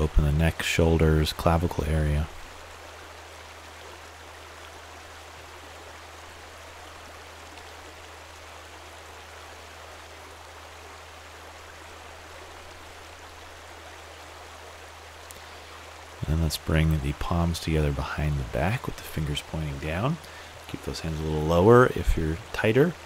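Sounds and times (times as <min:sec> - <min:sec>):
rushing running water: 0:00.0 - 0:23.0.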